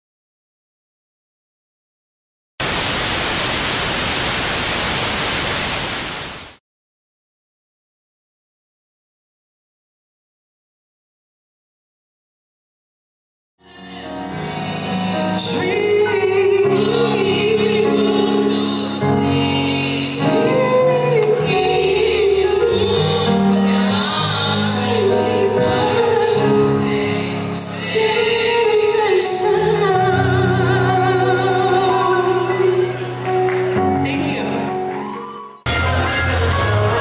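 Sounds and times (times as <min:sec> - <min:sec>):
women singing in harmony: 0:13.6 - 0:33.0, 0:35.7 - 0:37.0.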